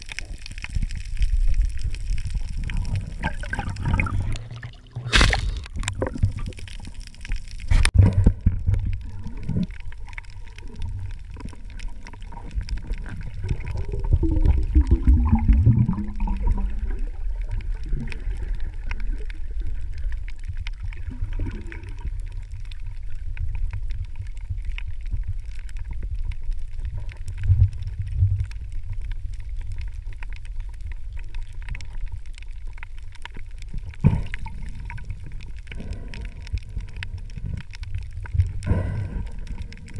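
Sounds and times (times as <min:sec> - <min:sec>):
crackle of small clicks: 0:00.0 - 0:39.9
gurgle of bubbles: 0:00.0 - 0:39.9
underwater rumble: 0:00.0 - 0:39.9
water splash: 0:02.6 - 0:09.6.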